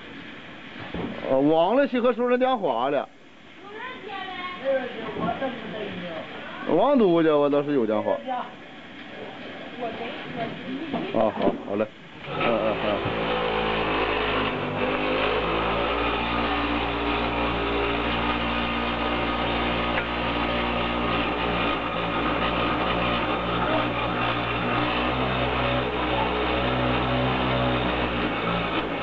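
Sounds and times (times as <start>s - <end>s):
machine humming: 8.8s - 29.0s.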